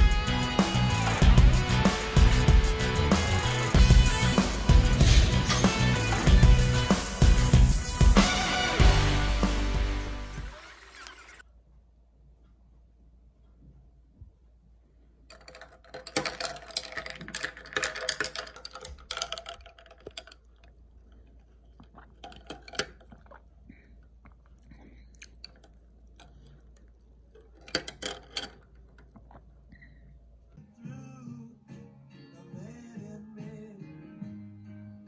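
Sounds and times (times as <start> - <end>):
ice cubes clinking in a glass: 15.3 - 20.7, 22.1 - 23.3.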